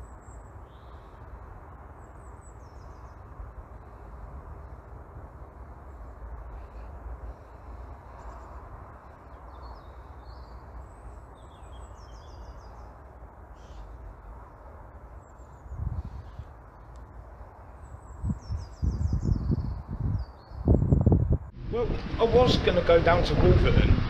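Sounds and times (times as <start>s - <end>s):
small birds chirping: 0.0s - 4.9s, 5.8s - 21.5s
wind buffeting microphone: 15.4s - 24.0s.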